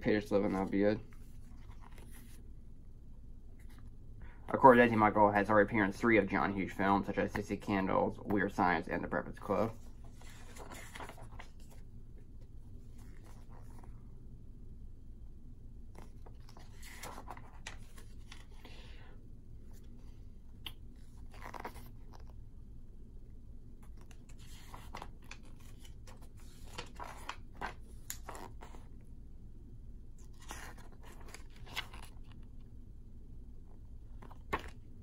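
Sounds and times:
paper pages turning: 0.2 - 2.4, 9.4 - 11.9, 15.9 - 18.6, 20.7 - 22.4, 23.8 - 28.9, 30.2 - 32.5, 34.1 - 35.0.

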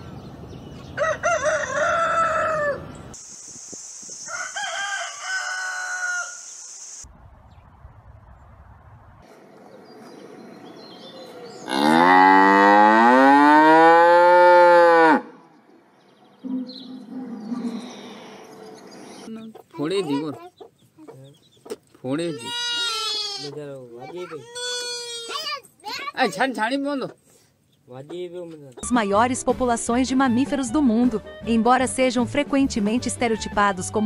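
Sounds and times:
rooster crowing: 1.0 - 3.0, 4.2 - 6.6
cow mooing: 11.6 - 15.3.

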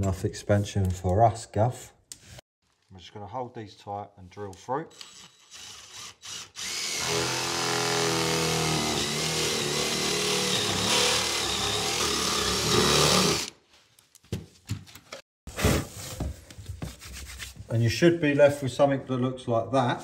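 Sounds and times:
cordless drill boring through wood: 4.9 - 13.5.

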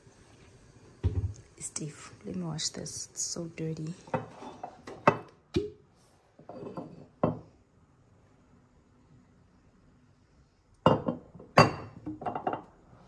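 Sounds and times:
bottle clunking on countertop: 1.0 - 1.4, 10.8 - 12.7.

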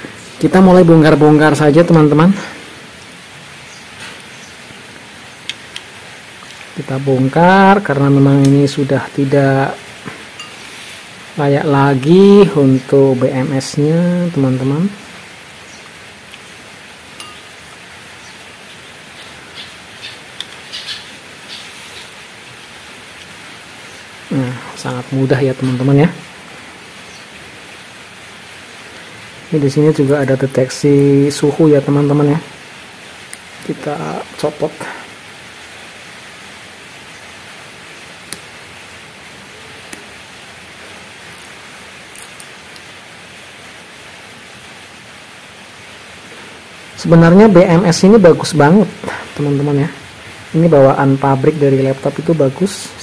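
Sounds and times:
background hiss: 0.0 - 53.0
small sharp clicks and ticks: 41.3 - 42.9.

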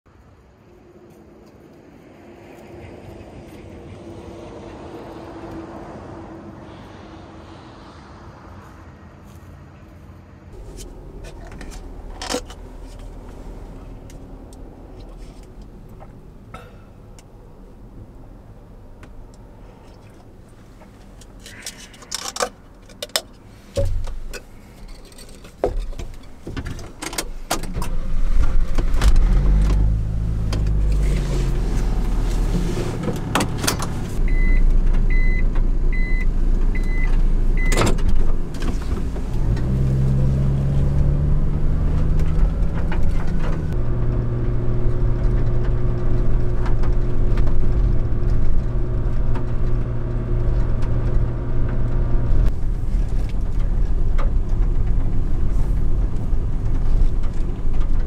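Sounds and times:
truck engine: 2.9 - 58.0
short beeps: 34.3 - 37.8.

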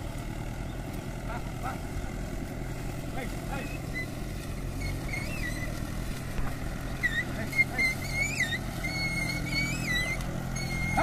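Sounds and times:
tractor engine droning: 0.0 - 11.0
high chirping whistles: 7.0 - 11.0.

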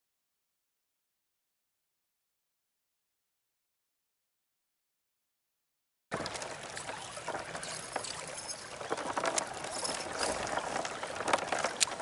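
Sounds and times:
reel and hull clicks and knocks: 6.1 - 12.0.

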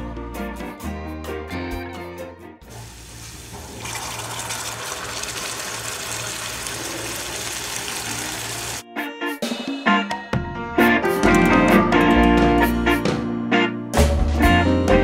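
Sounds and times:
broth pouring into a pan: 2.7 - 8.8.

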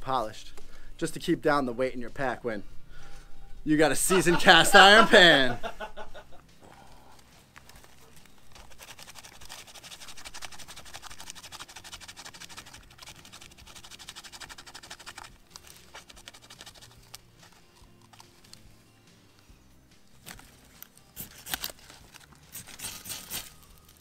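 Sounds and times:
hands scraping birch bark: 7.4 - 18.7, 20.2 - 24.0.

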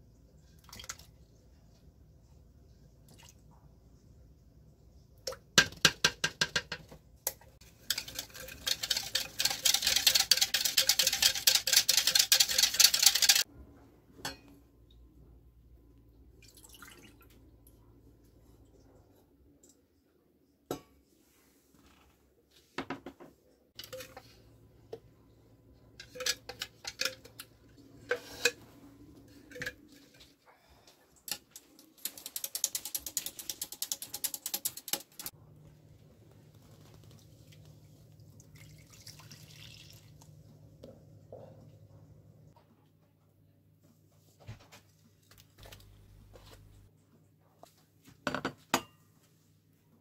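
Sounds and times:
metal spoon whisking in plastic bowl: 7.6 - 13.5, 31.3 - 35.3.

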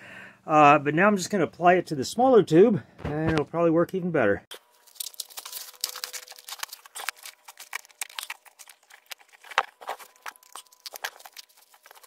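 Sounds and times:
foam pipe insulation crinkling: 4.5 - 12.0.

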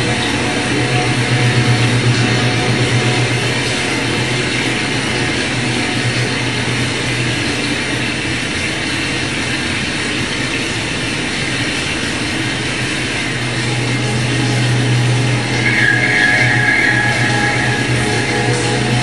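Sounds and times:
low hum: 0.0 - 8.4, 12.6 - 19.0.

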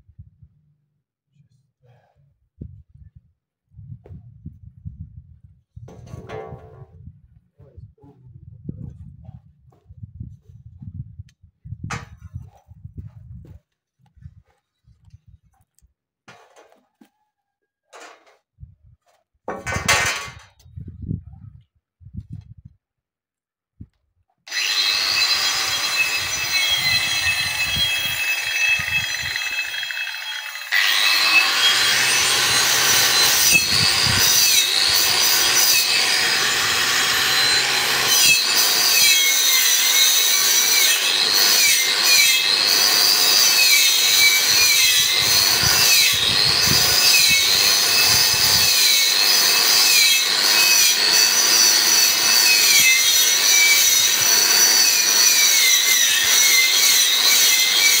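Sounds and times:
angle grinder grinding metal: 24.5 - 58.0.

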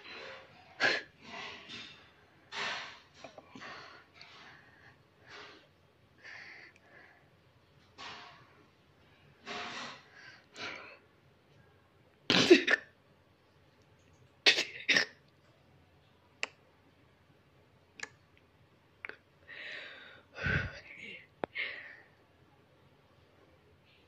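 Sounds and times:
person snorting and coughing: 12.3 - 12.9.

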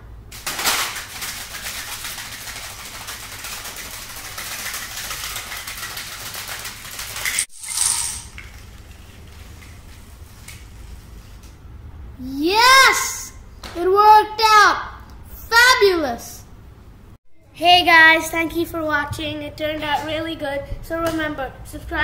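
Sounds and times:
dominoes clattering on tile: 0.3 - 9.7.

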